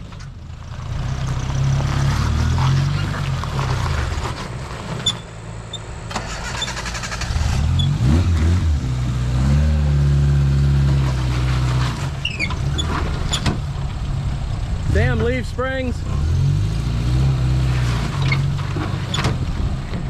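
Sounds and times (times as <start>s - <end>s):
engine running and revving: 0.0s - 20.0s.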